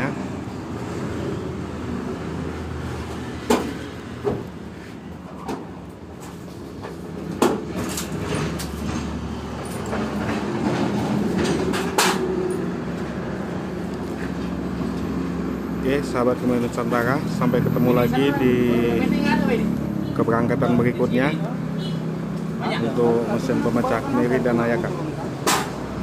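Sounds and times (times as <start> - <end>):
sharp knocks and clanks: 3.4 - 4.5, 5.4 - 12.7, 25.4 - 25.8.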